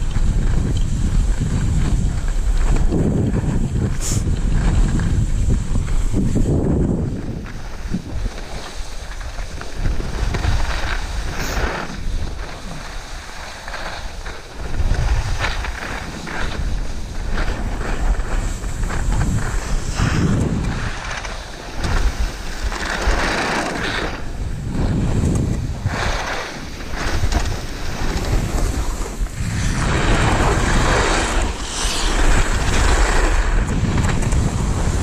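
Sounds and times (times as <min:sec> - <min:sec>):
skis scraping over snow: 0:00.0 - 0:35.0
wind buffeting microphone: 0:00.0 - 0:35.0.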